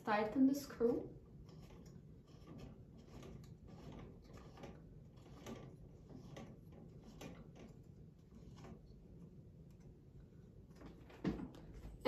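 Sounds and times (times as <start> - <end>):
small metal clicks and scrapes: 1.2 - 10.0.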